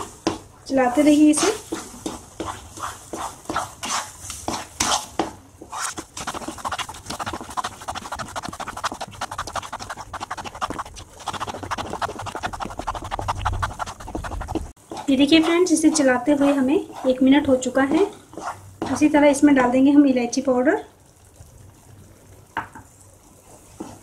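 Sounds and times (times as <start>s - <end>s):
thick mixture squelching: 0.0s - 19.2s
wooden spatula scraping a pan: 0.8s - 19.2s, 23.4s - 24.0s.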